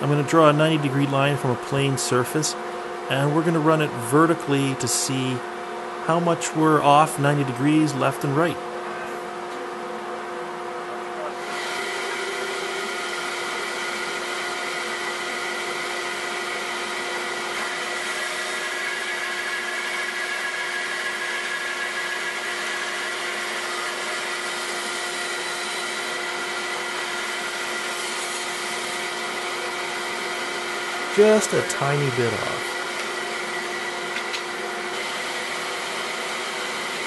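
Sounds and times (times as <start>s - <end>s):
bandsaw motor hum: 10.7s - 37.0s.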